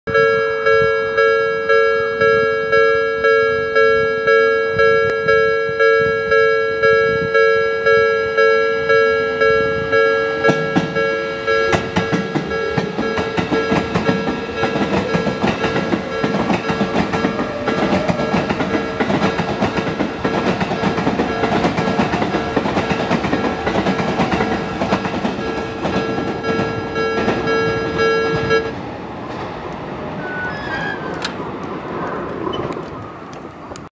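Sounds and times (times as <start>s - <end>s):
level crossing bell ringing: 0.1s - 28.7s
train running noise: 0.1s - 33.9s
train wheel clatter: 10.4s - 33.8s.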